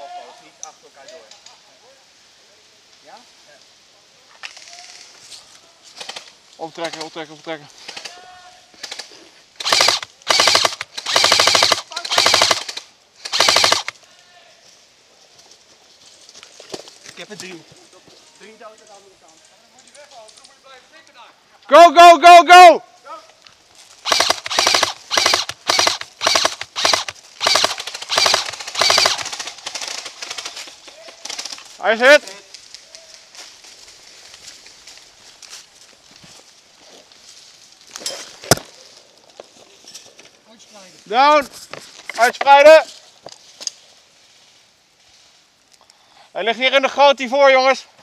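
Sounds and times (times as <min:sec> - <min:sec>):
airsoft gun full-auto bursts: 0:08.8 - 0:14.0, 0:24.0 - 0:30.6.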